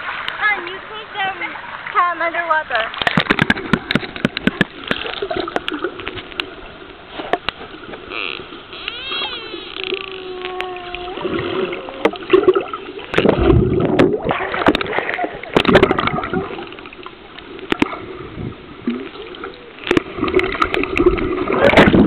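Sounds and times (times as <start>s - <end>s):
dolphin clicks: 7.4s - 11.2s
rush of air bubbles: 11.0s - 22.0s.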